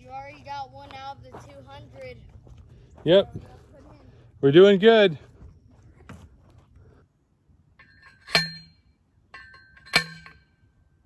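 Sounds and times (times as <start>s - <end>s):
post driver clanging on metal post: 7.8s - 10.6s.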